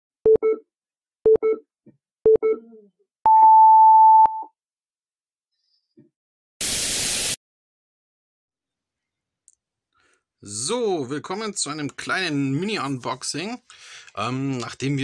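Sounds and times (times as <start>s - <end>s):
countdown beeps: 0.3s - 0.6s, 1.3s - 1.6s, 2.3s - 2.7s
burst of hiss: 6.6s - 7.4s.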